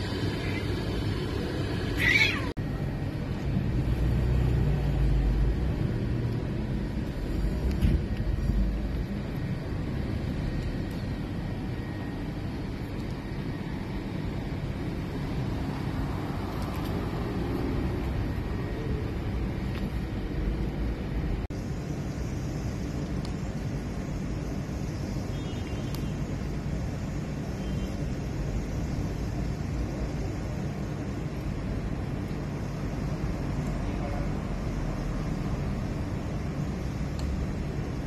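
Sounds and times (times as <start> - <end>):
steady low rumble: 0.0 - 38.0
cat meowing: 1.9 - 2.6.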